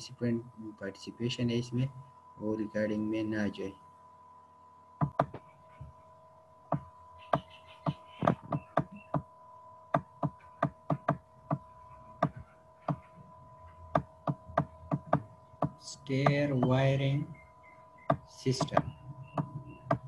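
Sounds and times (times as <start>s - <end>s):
steady electrical hum: 0.0s - 20.0s
stylus tapping on tablet: 5.0s - 5.5s, 6.7s - 9.3s, 10.0s - 13.1s, 13.9s - 16.8s, 18.1s - 20.0s.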